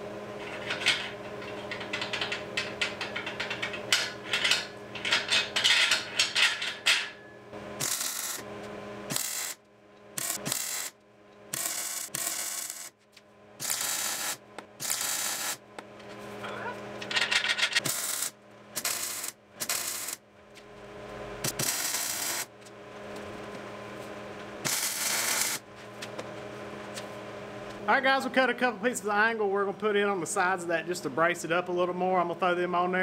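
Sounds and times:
steady low hum: 0.0s - 33.0s
metal knocking and scraping: 0.4s - 7.3s, 16.0s - 17.9s
welding arc bursts: 7.8s - 8.5s, 9.1s - 13.0s, 13.6s - 15.6s, 17.8s - 20.2s, 21.4s - 22.5s, 24.6s - 25.6s.

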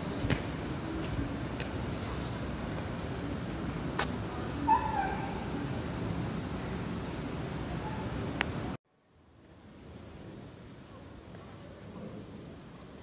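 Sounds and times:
outdoor background noise: 0.0s - 13.0s
animal yelp: 4.6s - 5.7s.

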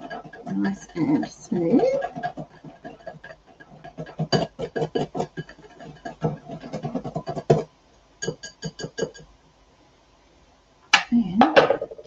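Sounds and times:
whisk clicking against glass bowl: 0.0s - 7.6s, 8.2s - 9.3s.

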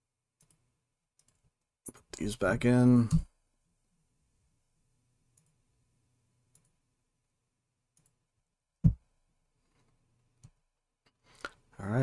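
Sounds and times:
keyboard and mouse clicks: 0.4s - 0.6s, 1.2s - 2.2s, 6.5s - 6.8s, 7.9s - 8.2s.

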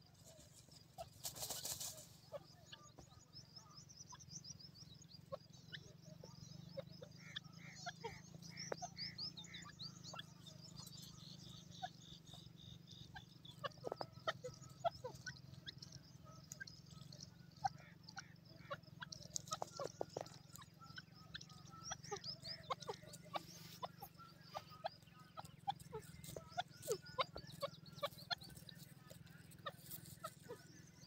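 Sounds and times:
bird clucking softly: 13.1s - 31.0s.

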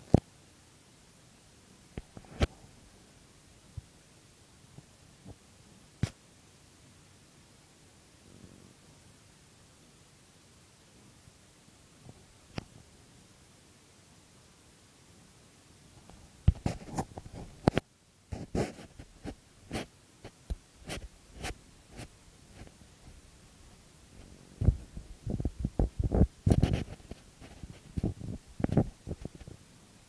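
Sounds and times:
microphone handling bumps and rubbing: 16.5s - 29.6s.

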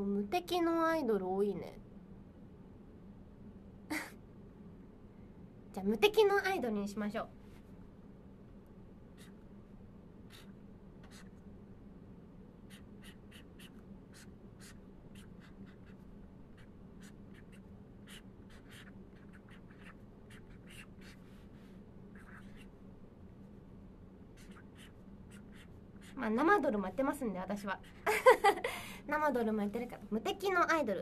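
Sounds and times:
pen scratching on paper: 10.3s - 11.3s, 12.7s - 21.3s, 22.1s - 22.7s, 24.4s - 26.2s.

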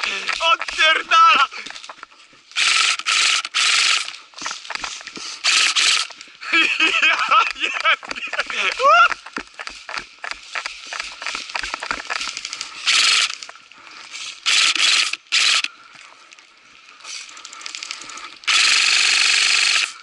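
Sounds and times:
rustling: 0.0s - 14.8s
airsoft gun full-auto bursts: 2.6s - 4.2s, 5.4s - 6.1s, 9.6s - 13.5s, 14.4s - 15.7s, 17.8s - 20.0s.

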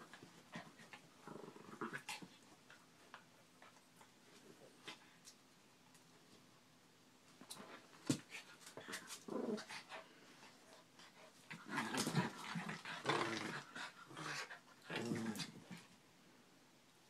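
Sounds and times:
small dogs growling: 0.0s - 2.4s, 8.8s - 10.1s, 11.5s - 15.9s.

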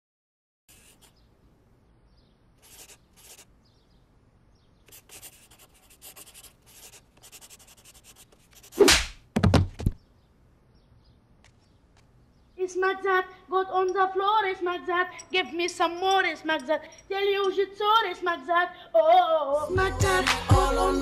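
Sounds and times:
faint scratchy strokes: 0.7s - 1.2s, 2.6s - 3.5s, 4.9s - 8.8s
loud swish: 8.8s - 9.2s
heavy thuds: 9.3s - 10.0s.

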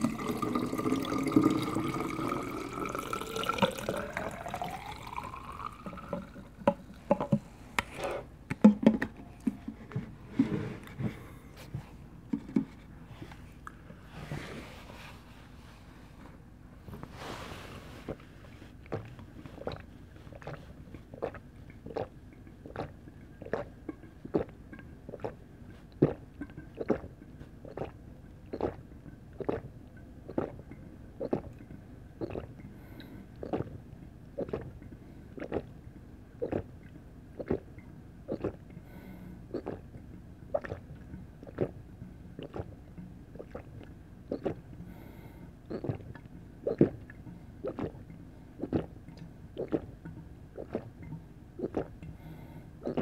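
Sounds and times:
person gulping a drink: 0.0s - 7.4s, 18.1s - 35.8s, 36.4s - 53.0s.

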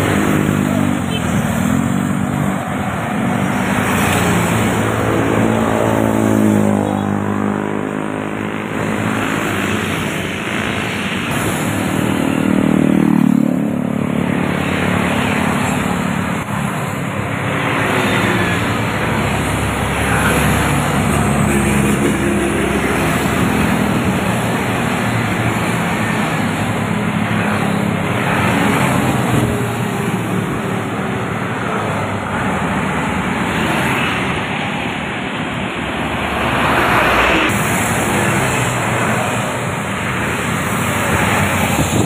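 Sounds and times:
highway traffic passing: 0.0s - 42.0s
passing vehicle engine: 0.0s - 42.0s.

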